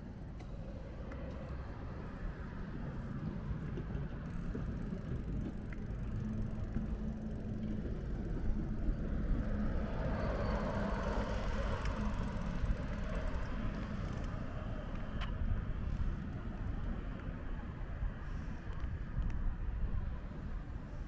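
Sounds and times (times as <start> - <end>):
traffic rumble: 0.0 - 21.0
vehicle passing: 4.3 - 14.7.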